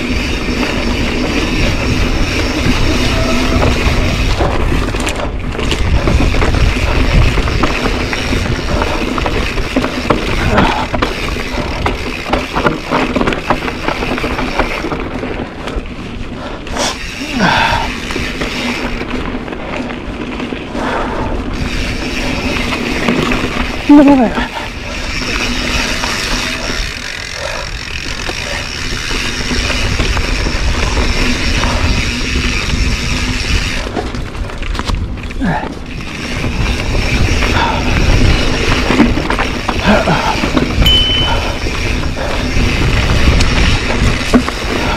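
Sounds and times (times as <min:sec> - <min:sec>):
bike clicks and rattles: 0:00.0 - 0:44.9
tyres on dirt: 0:00.0 - 0:44.9
wind buffeting microphone: 0:00.0 - 0:44.9.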